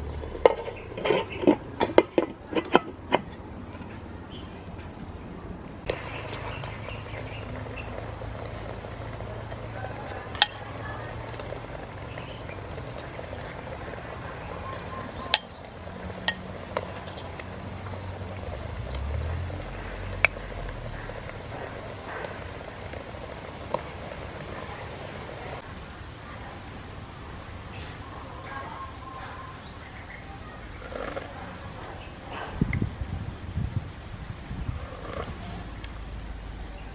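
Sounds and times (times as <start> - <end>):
spoon clinking on pot and bowl: 10.3 - 10.7, 15.2 - 15.6.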